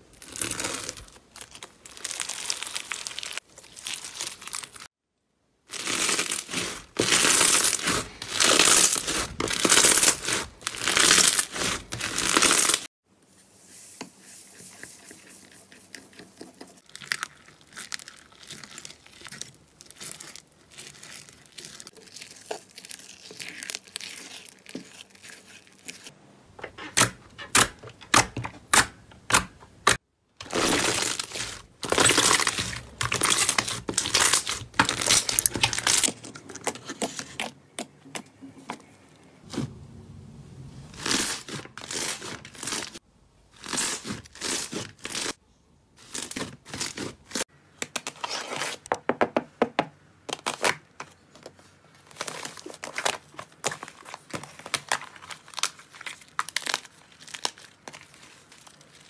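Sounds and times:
slime crackling and popping: 0:00.2 - 0:04.9, 0:26.9 - 0:36.1.

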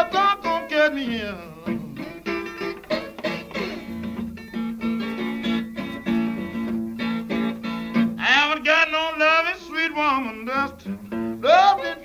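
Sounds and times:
man singing: 0:00.0 - 0:02.4, 0:08.2 - 0:12.0
acoustic guitar picking: 0:00.0 - 0:12.0.

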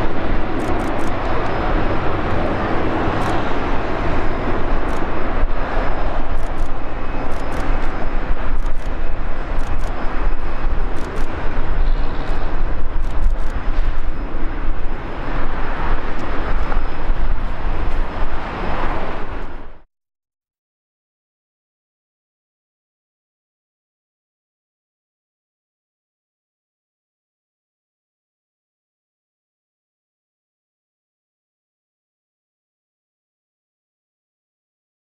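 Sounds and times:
jet engines rumbling at takeoff: 0:00.0 - 0:19.9.

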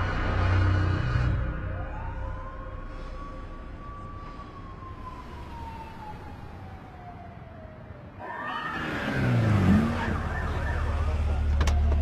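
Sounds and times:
car engines rumbling: 0:00.0 - 0:12.0
police sirens wailing: 0:01.3 - 0:12.0.

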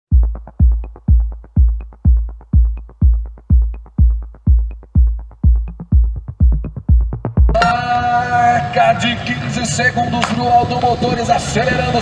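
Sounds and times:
electronic dance music: 0:00.1 - 0:09.1.

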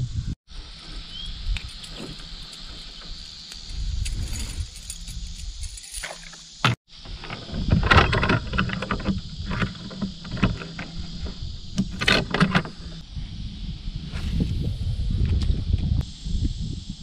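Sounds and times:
metal chain clinking on canoe: 0:07.2 - 0:12.9.

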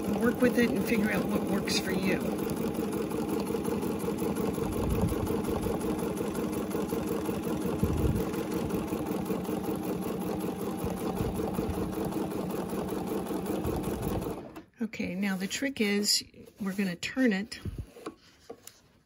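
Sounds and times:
sewing machine running: 0:00.0 - 0:14.7.

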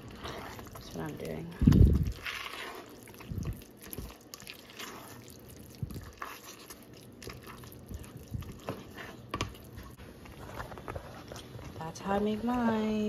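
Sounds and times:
spoon stirring macaroni in pot: 0:00.0 - 0:12.3.

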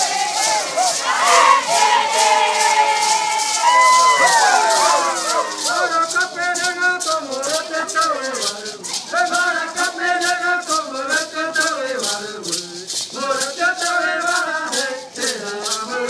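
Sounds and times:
maraca rattles shaking: 0:00.0 - 0:16.0
voices singing a chant: 0:00.0 - 0:16.0.

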